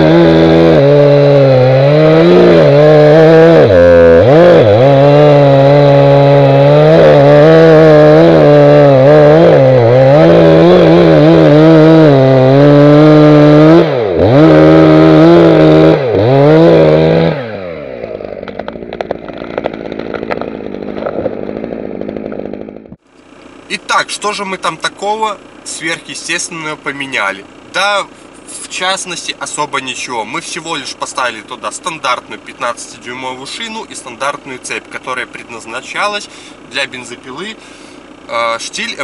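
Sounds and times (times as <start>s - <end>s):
chainsaw cutting wood: 0.0s - 23.4s.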